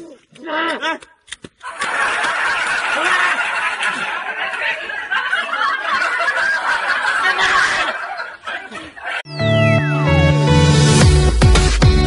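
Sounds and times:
group of people laughing: 1.6s - 9.3s.

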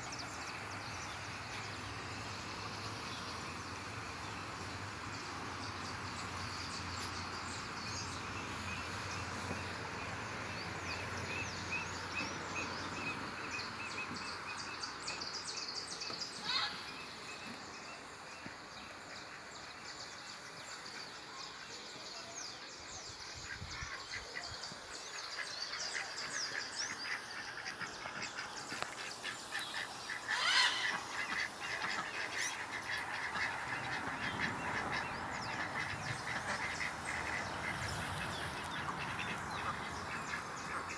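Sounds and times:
waterfowl calling: 25.4s - 40.9s.

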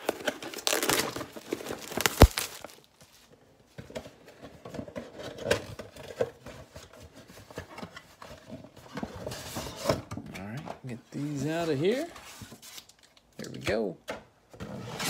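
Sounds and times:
cardboard scraping and rustling: 0.0s - 3.2s.

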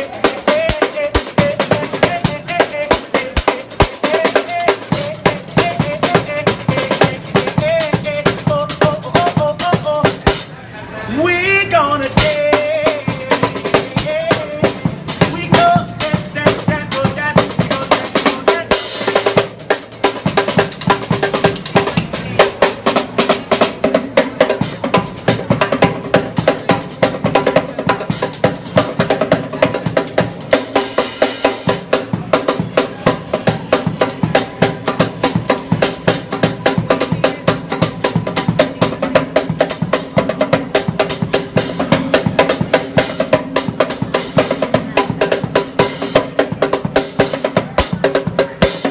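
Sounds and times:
drum kit playing fills: 0.0s - 10.6s, 12.1s - 48.9s.

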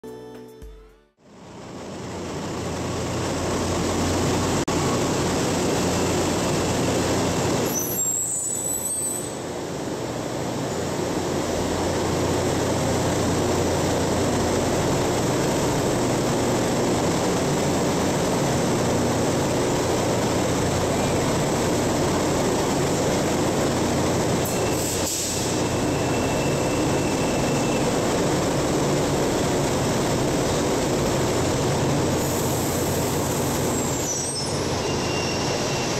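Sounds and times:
train braking to a stop: 1.7s - 9.8s, 19.2s - 35.9s
brake squeal: 7.6s - 9.4s, 24.4s - 28.0s, 32.3s - 35.9s
train equipment running: 9.4s - 35.9s.

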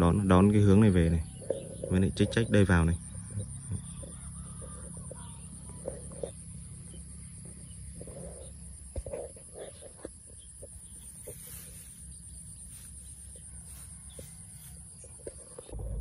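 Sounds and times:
faint animal calls: 0.0s - 16.0s
wind rumble on microphone: 15.0s - 16.0s.

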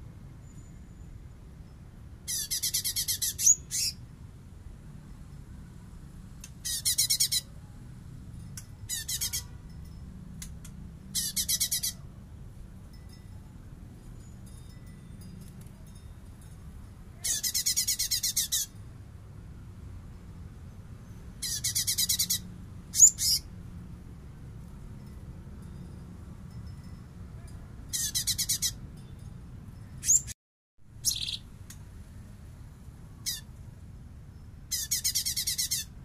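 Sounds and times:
bird singing rattling notes: 2.2s - 4.0s, 8.8s - 12.0s, 17.2s - 18.8s, 21.0s - 23.5s, 27.9s - 28.9s, 29.8s - 30.4s, 31.0s - 31.6s, 34.6s - 36.0s.

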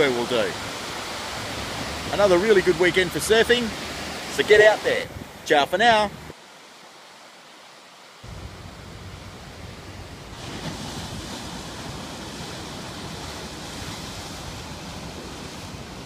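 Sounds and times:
wind on microphone: 5.0s - 5.4s, 8.3s - 16.0s
waves breaking over rocks: 8.3s - 16.0s.

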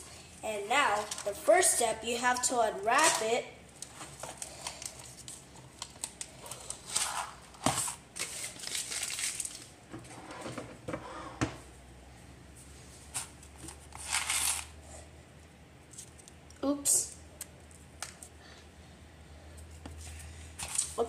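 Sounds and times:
wrapper crinkling and rustling: 0.8s - 1.4s, 2.3s - 9.8s, 13.1s - 14.8s, 20.6s - 21.0s.

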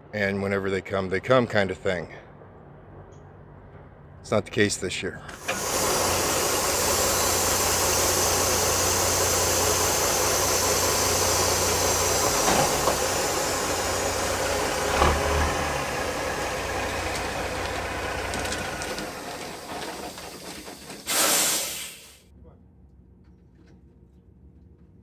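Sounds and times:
diesel truck engine running: 5.3s - 22.2s.

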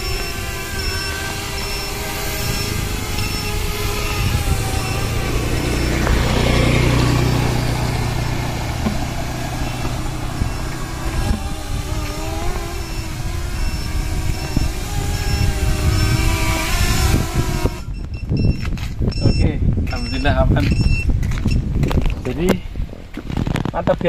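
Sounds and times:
motorcycle engine running: 0.0s - 18.0s
drone propellers buzzing: 0.0s - 19.0s.

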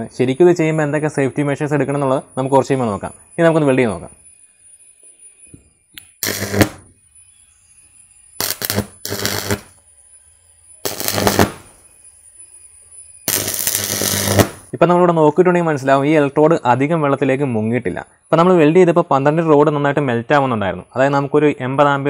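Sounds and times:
low mains buzz: 0.0s - 14.8s
crackling welding arc: 6.0s - 7.0s, 8.4s - 9.9s, 10.8s - 12.4s, 13.2s - 14.8s.

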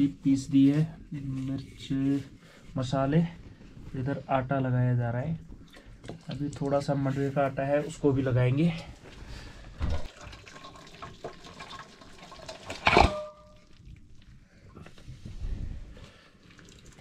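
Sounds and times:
water boiling in a pot: 9.9s - 14.6s, 16.3s - 17.0s
metal plate clanking on pot: 12.7s - 13.6s.

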